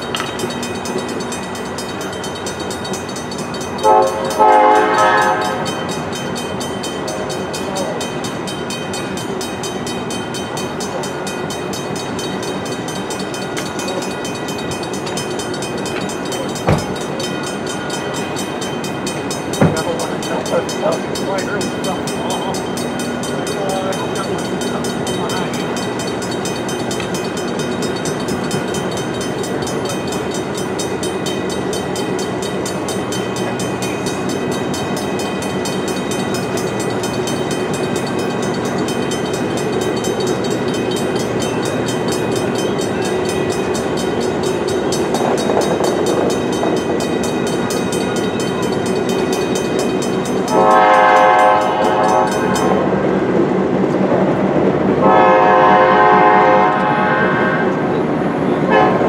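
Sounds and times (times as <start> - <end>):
train rumbling past: 0.0 - 59.0
train horn blast: 3.8 - 5.8, 50.5 - 53.0, 55.0 - 58.0, 58.6 - 59.0.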